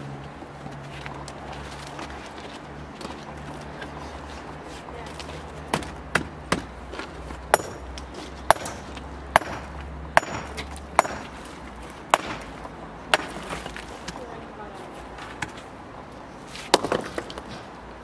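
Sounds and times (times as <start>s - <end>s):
blade chopping on wooden block: 5.7s - 6.7s, 7.5s - 7.9s, 8.5s - 11.4s, 12.1s - 13.8s.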